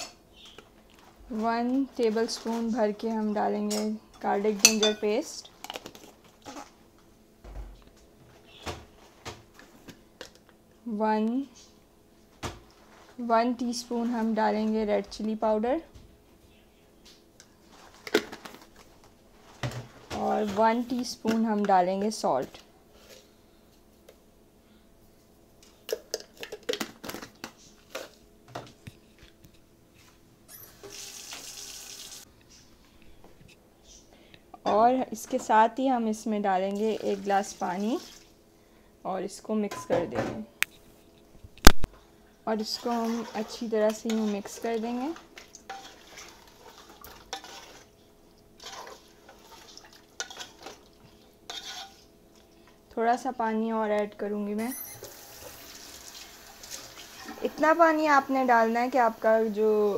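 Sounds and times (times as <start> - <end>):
spoon tapping metal pot: 4.7 - 5.1
tap water running: 30.8 - 32.3, 36.8 - 38.3, 48.7 - 51.1, 55.0 - 58.3
wooden spoon scraping metal pot: 42.5 - 48.0, 48.6 - 50.8, 51.5 - 52.1.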